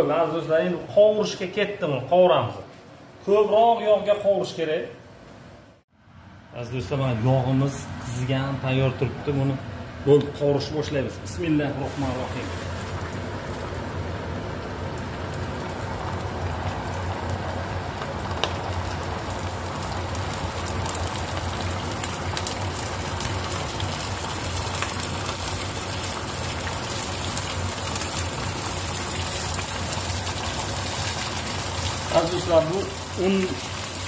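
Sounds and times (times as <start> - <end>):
chicken deep-frying in oil: 11.5 - 34.0.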